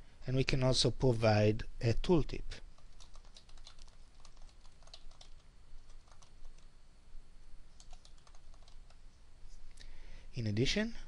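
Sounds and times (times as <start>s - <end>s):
keyboard typing: 2.8s - 6.7s, 7.8s - 9.0s.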